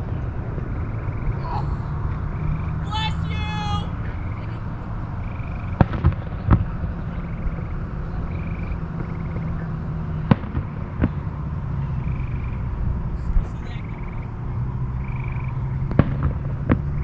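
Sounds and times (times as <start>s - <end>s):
low background rumble: 0.0s - 17.0s
distant fireworks bangs: 4.0s - 13.2s, 13.8s - 17.0s.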